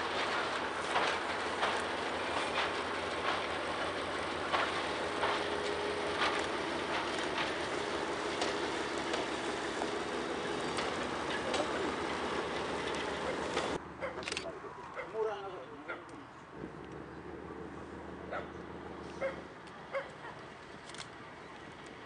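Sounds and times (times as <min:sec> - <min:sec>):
train rumble on bridge: 0:00.0 - 0:14.1, 0:16.6 - 0:22.0
wheel clicks over rail joints: 0:00.0 - 0:14.5.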